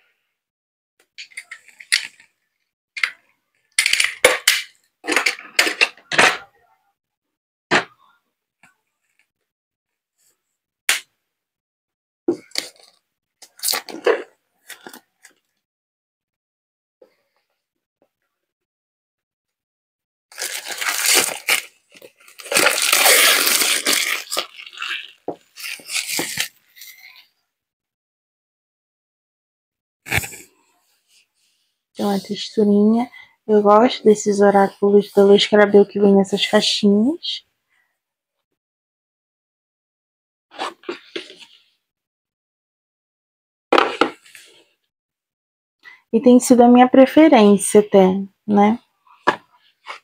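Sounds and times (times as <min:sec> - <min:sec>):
film being scrunched: 0:20.3 - 0:27.0
plastic shrink wrap crinkling: 0:20.3 - 0:27.0.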